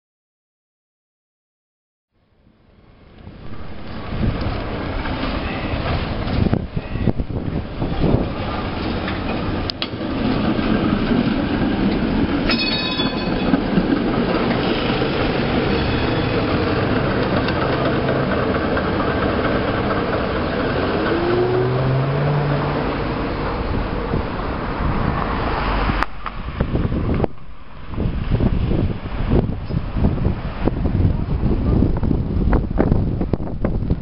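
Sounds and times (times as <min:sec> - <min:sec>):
streetcar rolling on rails: 0:02.2 - 0:34.0
high ringing: 0:12.4 - 0:13.6, 0:15.7 - 0:16.6.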